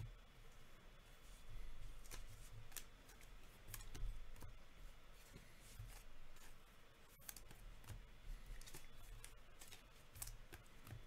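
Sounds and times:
low steady hum: 0:00.0 - 0:11.0
plastic card sleeves crinkling: 0:08.4 - 0:11.0.

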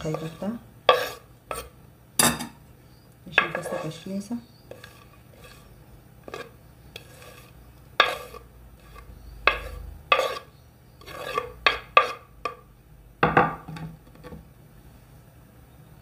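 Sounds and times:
spoon stirring in a bowl: 0:00.0 - 0:02.5, 0:03.2 - 0:12.7.

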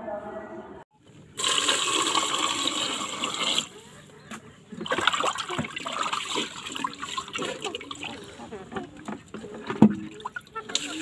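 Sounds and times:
water pouring into a pot: 0:01.4 - 0:03.7, 0:10.0 - 0:11.0.

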